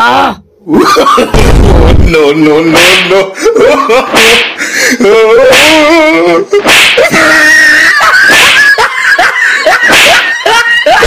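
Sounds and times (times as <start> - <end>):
person wailing and shrieking: 4.4 - 11.0.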